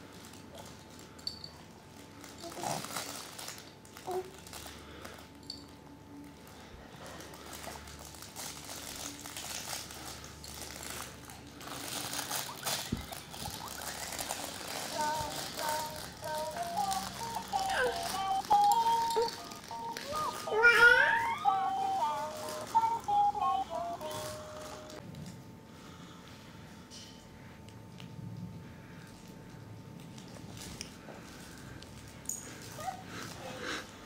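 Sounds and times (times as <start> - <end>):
fabric toys rustling and rattling: 0.0 - 25.0, 30.0 - 34.0
simple tune of stepped notes: 15.3 - 25.0.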